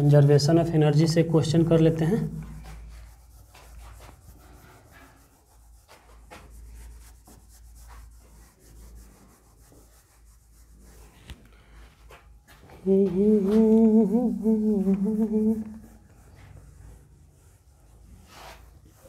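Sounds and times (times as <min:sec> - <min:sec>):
duster wiping whiteboard: 0:01.0 - 0:19.0
man humming: 0:12.8 - 0:15.9.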